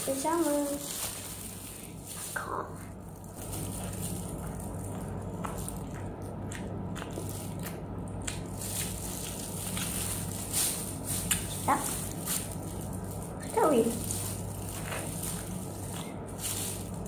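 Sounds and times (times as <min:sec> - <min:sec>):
steady low hum: 0:00.0 - 0:17.0
mouth chewing soft wafers: 0:03.5 - 0:10.3.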